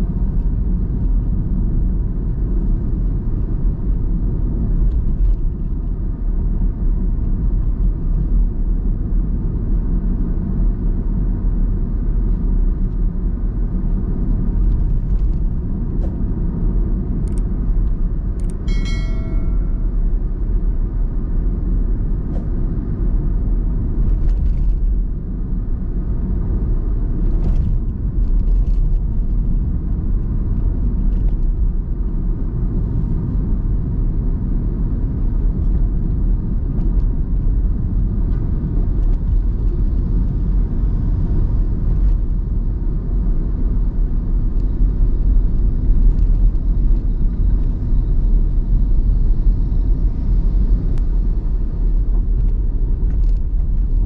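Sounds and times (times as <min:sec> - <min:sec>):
car engine and tyre rumble: 0:00.0 - 0:54.0
bell-like chime: 0:18.7 - 0:20.0.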